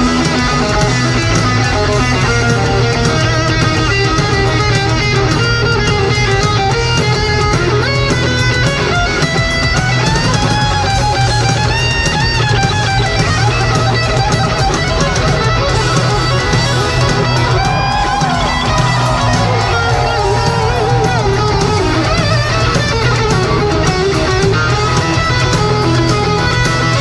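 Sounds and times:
electric guitar lead: 0.0 - 27.0
hard rock band: 0.0 - 27.0.

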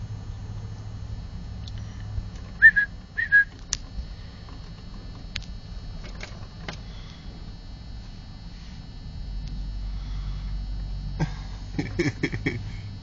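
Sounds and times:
person whistling short notes: 2.6 - 3.5.

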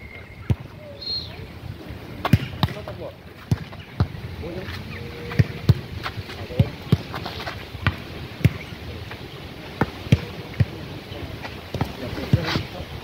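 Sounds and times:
volleyball thuds: 2.2 - 4.2, 5.3 - 8.7.

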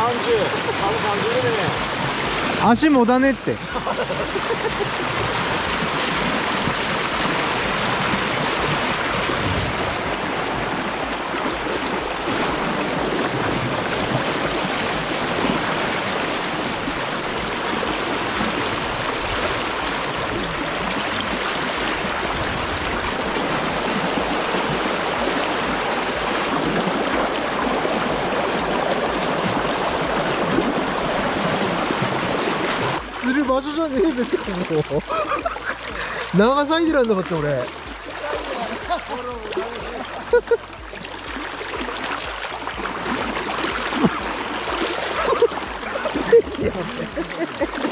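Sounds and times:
river current rushing: 0.0 - 47.9.

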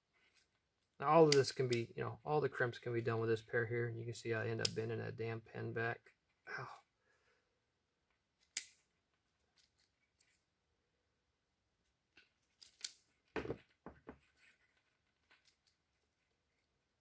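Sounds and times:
wire handling: 0.1 - 1.8, 8.0 - 10.5, 11.8 - 17.0.

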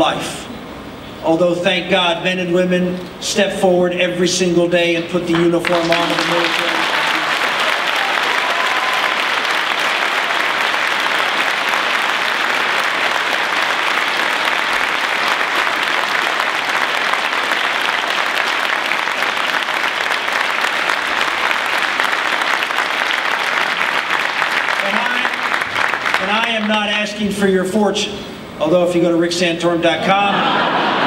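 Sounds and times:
crowd applauding: 5.3 - 27.1.

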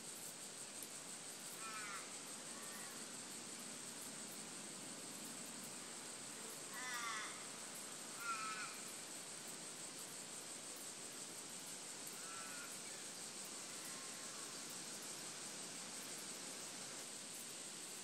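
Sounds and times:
forest background hiss: 0.0 - 18.0
crow cawing: 1.6 - 2.1, 6.8 - 7.4, 8.2 - 8.8.

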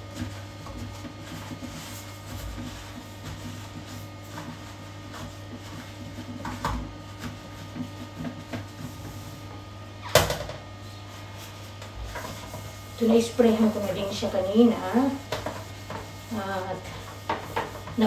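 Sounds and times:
cloth rubbing on ceramic: 0.0 - 9.9, 10.7 - 18.0.

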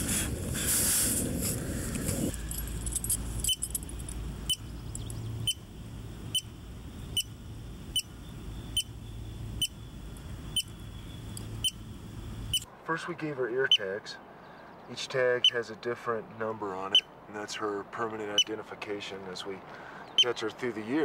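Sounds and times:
low steady hum: 1.3 - 13.2.

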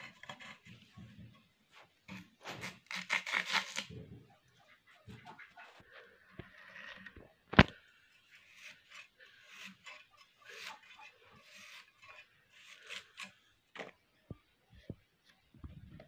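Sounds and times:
potato cut on iron blade: 2.1 - 3.9, 8.4 - 13.4.

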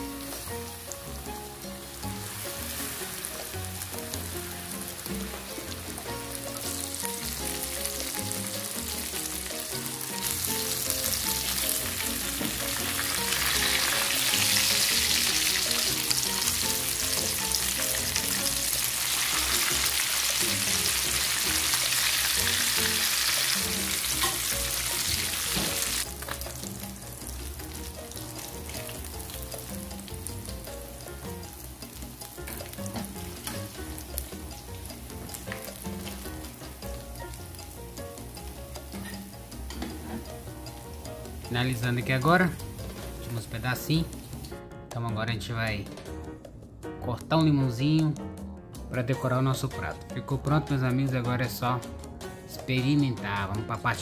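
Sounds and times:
fish frying in oil: 0.1 - 43.2.

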